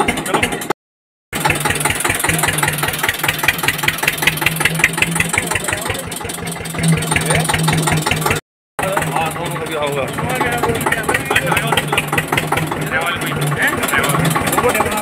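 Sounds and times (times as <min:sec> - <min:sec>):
tractor engine idling: 0:00.0 - 0:00.7, 0:01.4 - 0:15.0.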